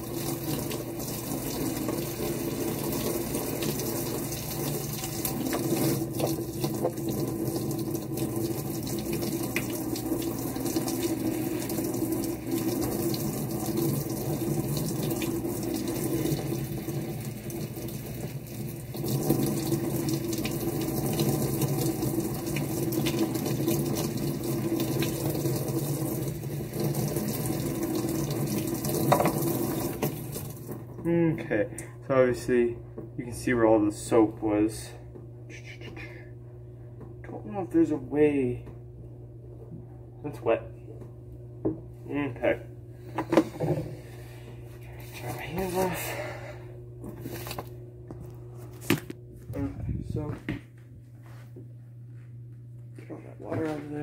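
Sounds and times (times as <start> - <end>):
water spraying and splashing into sink: 0.0 - 30.8, 47.2 - 47.7.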